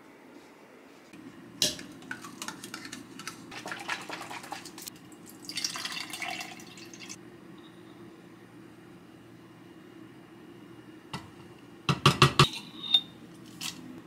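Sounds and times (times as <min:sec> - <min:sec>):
milk pouring into cup: 0:01.8 - 0:07.2.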